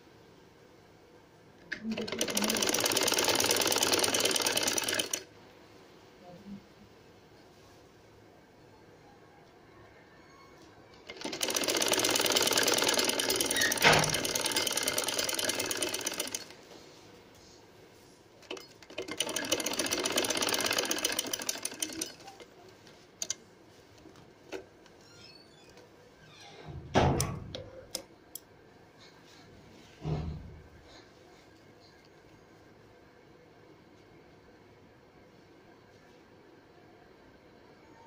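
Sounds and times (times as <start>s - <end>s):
sewing machine stitching: 1.7s - 5.3s, 11.0s - 16.6s, 18.4s - 22.5s.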